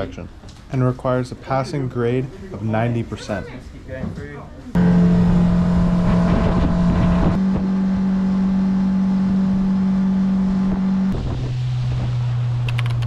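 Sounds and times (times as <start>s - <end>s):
outboard motor running: 4.8s - 13.0s
sharp clicks: 12.7s - 13.0s.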